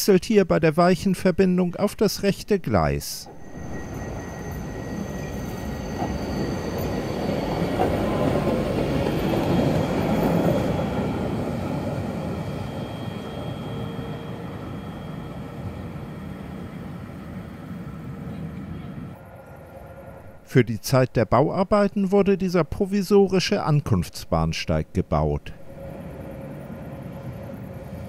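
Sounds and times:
tram rolling past: 3.2 - 20.5, 25.6 - 28.0
wheels squealing: 3.3 - 17.0.

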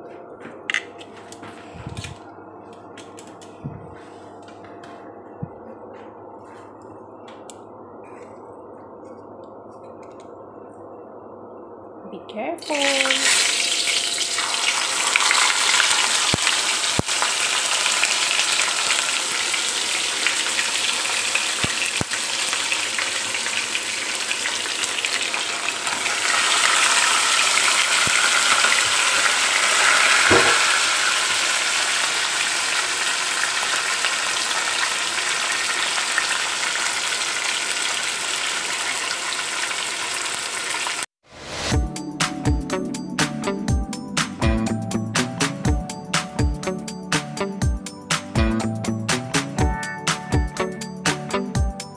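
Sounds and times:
fish sizzling in hot oil: 12.8 - 41.1.

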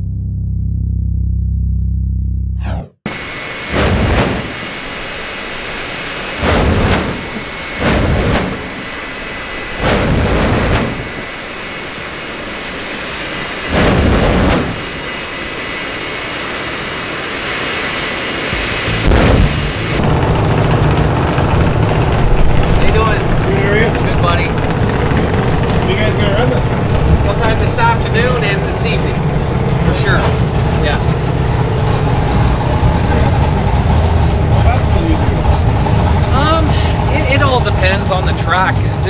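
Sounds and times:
afterburner firing: 2.6 - 37.7
jet engine roaring with whine: 2.6 - 39.0.

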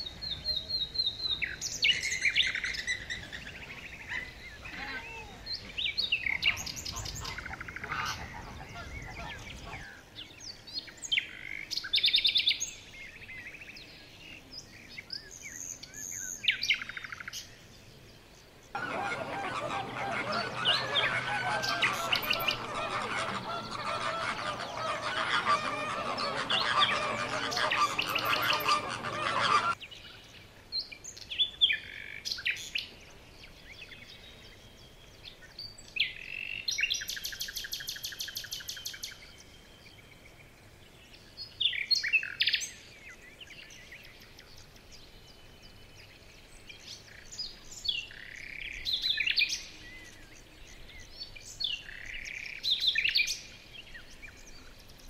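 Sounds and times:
flamingos honking: 6.4 - 9.8, 18.8 - 29.8
bird chirping and trill: 18.8 - 29.8.

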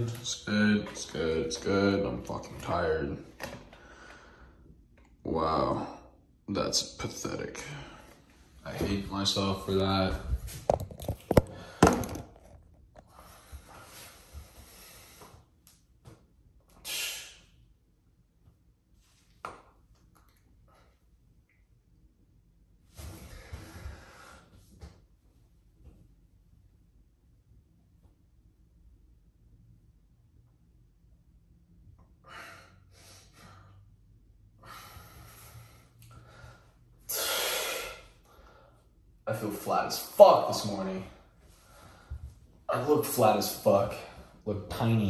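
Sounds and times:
sharp exhale: 16.8 - 17.5, 34.6 - 38.8.

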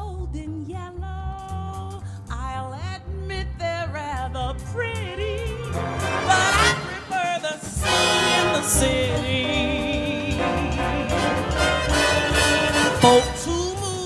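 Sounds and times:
pulsing bass line: 0.0 - 14.0
person singing: 5.0 - 14.0.

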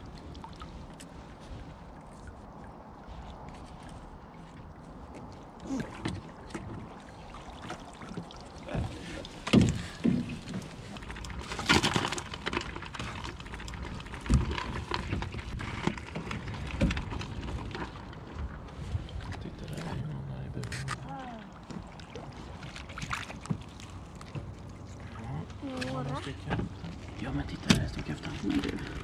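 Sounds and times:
water sloshing: 0.0 - 29.0
traps knocking against boat hull: 8.8 - 10.8.

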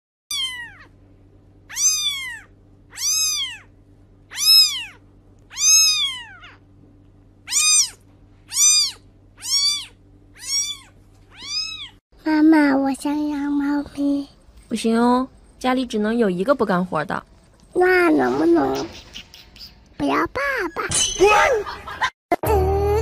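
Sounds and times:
kitten mewing: 0.3 - 0.9, 1.7 - 3.7, 4.3 - 6.6, 7.5 - 12.0.

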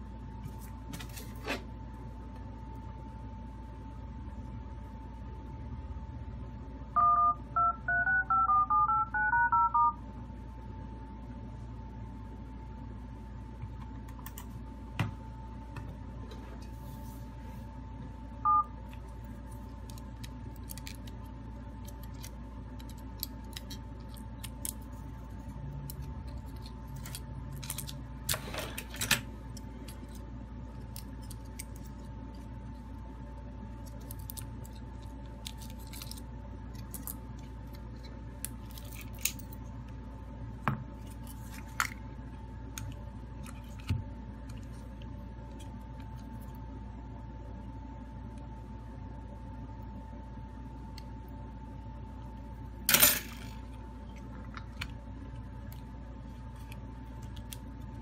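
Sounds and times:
phone keypad two-tone beeps: 7.0 - 10.0, 18.5 - 18.7.

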